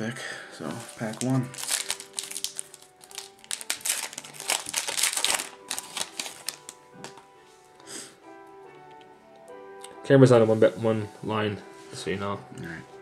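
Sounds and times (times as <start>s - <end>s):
foil wrapper crinkling: 0.7s - 7.2s.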